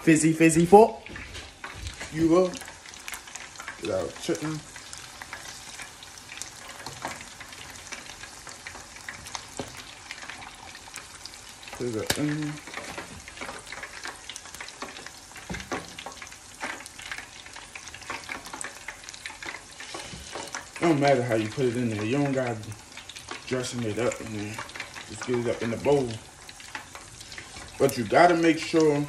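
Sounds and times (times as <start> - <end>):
person speaking: 0.0 - 1.1, 2.1 - 2.7, 11.8 - 12.7, 20.8 - 22.7, 23.5 - 26.2, 27.8 - 29.0
oil sizzling and popping: 0.0 - 29.0.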